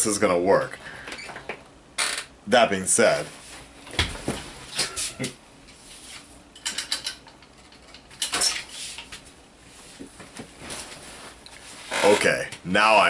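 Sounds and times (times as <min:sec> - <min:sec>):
knocks and rustles of handling: 0:03.4 - 0:12.6
desk chair creaking: 0:11.6 - 0:12.6.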